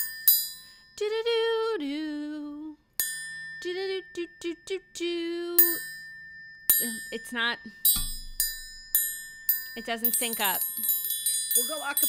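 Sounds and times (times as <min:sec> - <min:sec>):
bell-like metal chime: 0:00.0 - 0:01.1, 0:03.0 - 0:04.8, 0:05.6 - 0:12.0
woman singing a jingle: 0:00.6 - 0:02.9, 0:03.5 - 0:06.0, 0:06.8 - 0:08.0, 0:09.7 - 0:12.0.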